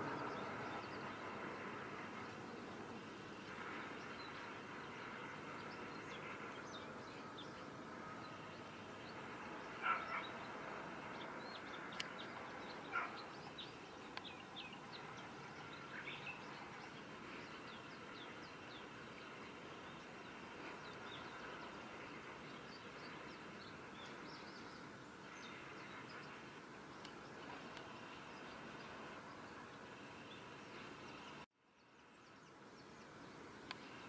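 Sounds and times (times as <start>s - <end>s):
faint steady background noise: 0.0s - 34.0s
small birds chirping: 8.4s - 34.0s.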